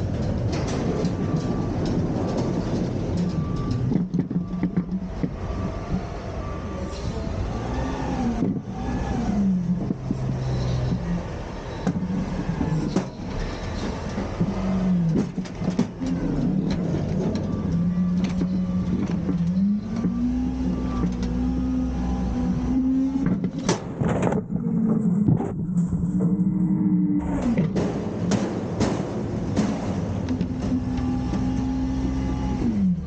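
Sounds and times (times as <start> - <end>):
garbage truck diesel engine: 0.0 - 33.0
bins knocking and clattering: 11.8 - 20.2, 27.5 - 31.5.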